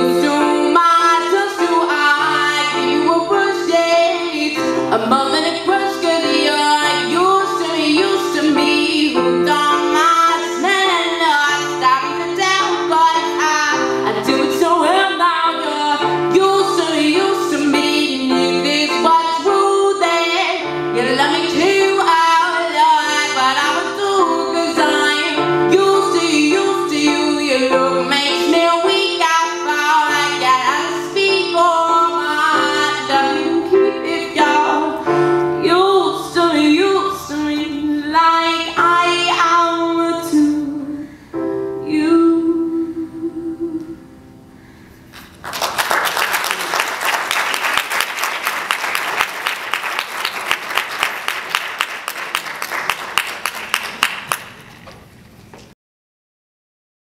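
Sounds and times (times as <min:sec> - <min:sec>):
woman singing: 0:00.0 - 0:41.0, 0:41.7 - 0:44.1
piano accompaniment: 0:00.0 - 0:54.6
audience applause: 0:45.4 - 0:54.6.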